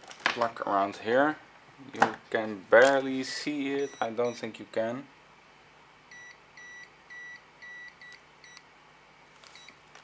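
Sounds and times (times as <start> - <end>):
clamp meter buzzer beeping: 6.1 - 8.6.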